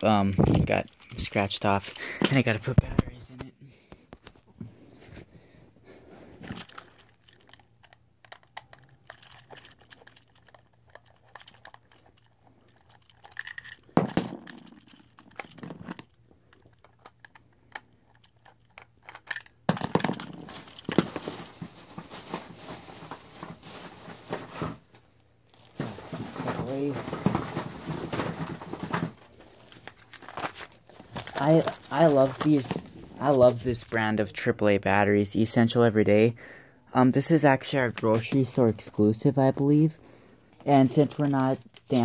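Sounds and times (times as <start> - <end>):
rustling and crinkling: 0.3 - 34.2, 37.8 - 42.0
plastic toy clicks and knocks: 6.5 - 21.0.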